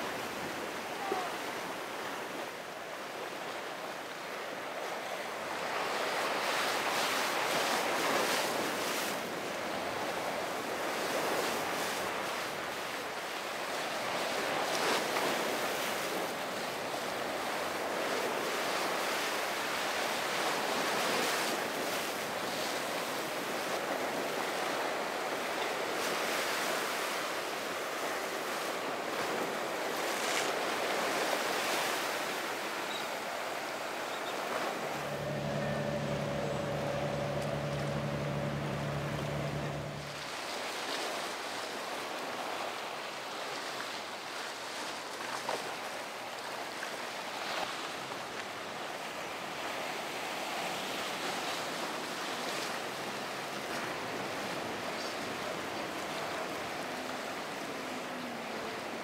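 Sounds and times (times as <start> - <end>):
ocean surf breaking: 30.9 - 42.1.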